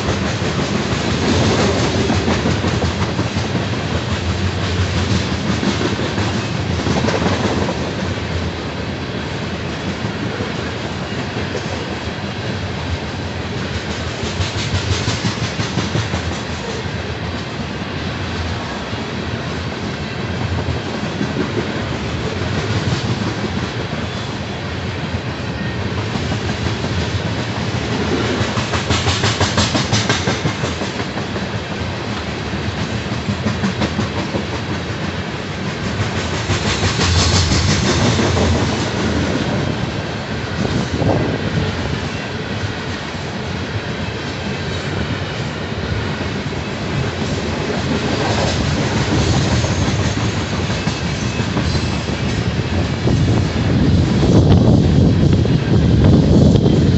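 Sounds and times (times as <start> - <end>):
steel wheels rumbling on rail: 0.0 - 56.9.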